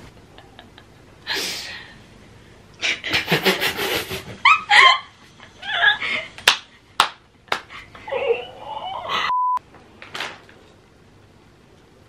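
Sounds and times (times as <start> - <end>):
person laughing heartily: 0.1 - 1.6, 2.8 - 6.4.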